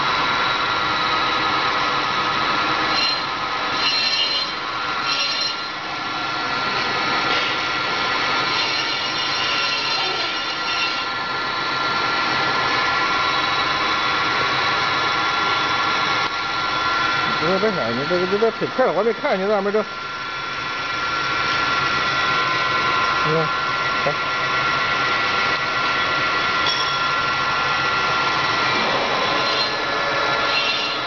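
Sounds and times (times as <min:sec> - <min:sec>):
lathe mechanical whine: 0:00.0 - 0:31.0
high screeching: 0:02.9 - 0:05.8, 0:08.5 - 0:11.1, 0:28.8 - 0:31.0.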